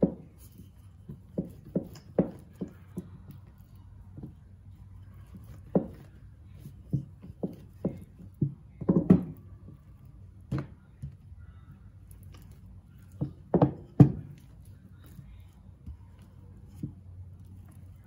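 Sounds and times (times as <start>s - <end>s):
rolling pin knocking on counter: 0.0s - 0.3s, 1.0s - 3.2s, 5.3s - 9.4s, 13.1s - 14.5s.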